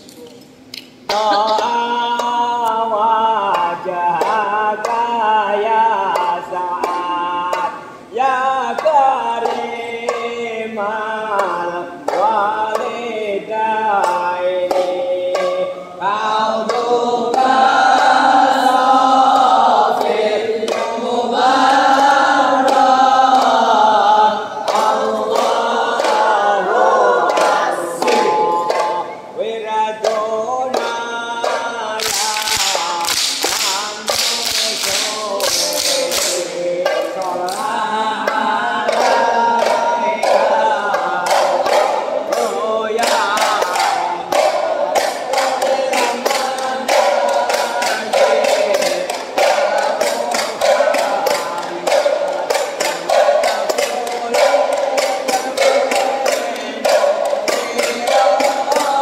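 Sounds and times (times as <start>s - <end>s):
group of voices singing: 1.1s - 59.0s
hand-struck frame drums: 1.1s - 59.0s.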